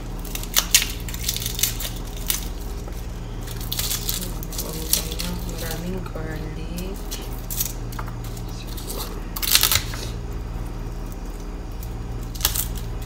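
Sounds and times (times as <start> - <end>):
steady low hum: 0.0 - 13.0
papery rustling of garlic: 0.2 - 6.1.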